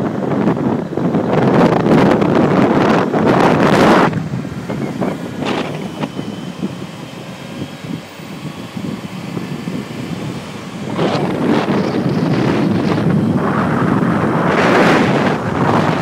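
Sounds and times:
road and engine rumble: 0.0 - 16.0
wind buffeting microphone: 0.0 - 16.0.

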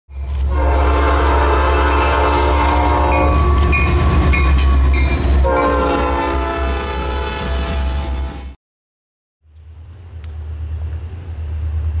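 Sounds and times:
locomotive air horn chord: 0.4 - 3.9, 5.4 - 8.6.

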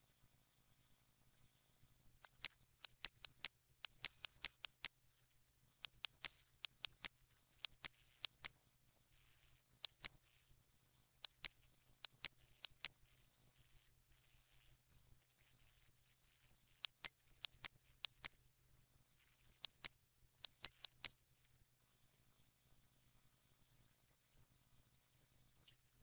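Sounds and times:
computer mouse clicking: 2.2 - 5.0, 5.8 - 8.6, 9.2 - 10.6, 11.2 - 18.4, 19.2 - 21.2.

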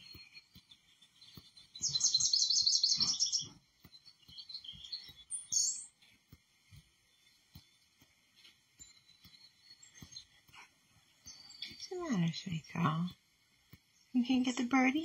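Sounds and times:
bird chirps: 0.0 - 15.0
bird trilling: 1.8 - 3.5.

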